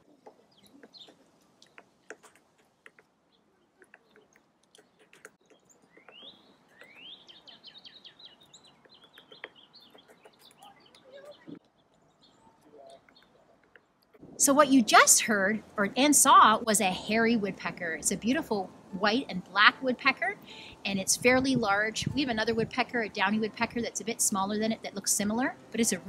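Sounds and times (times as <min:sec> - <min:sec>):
woodpecker calling: 0:00.0 - 0:14.3.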